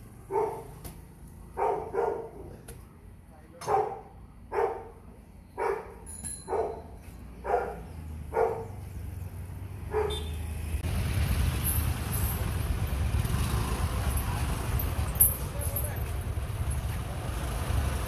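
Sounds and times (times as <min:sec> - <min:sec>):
dog barking: 0:00.3 - 0:00.8, 0:01.5 - 0:02.6, 0:03.6 - 0:05.0, 0:05.6 - 0:08.7, 0:09.9 - 0:10.3
vehicle engine running: 0:07.9 - 0:18.0.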